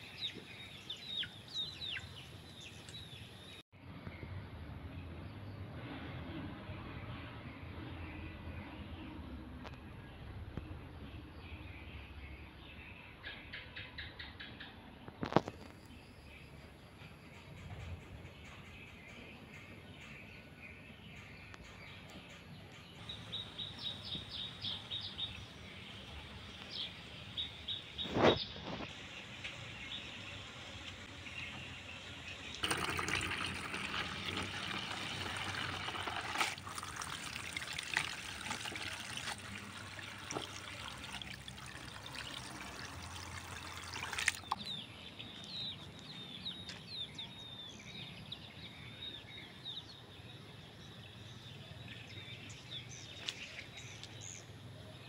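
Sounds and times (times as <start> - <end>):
birds chirping: 0.0 - 4.3, 7.3 - 55.0
water running into plastic basin: 32.4 - 44.6.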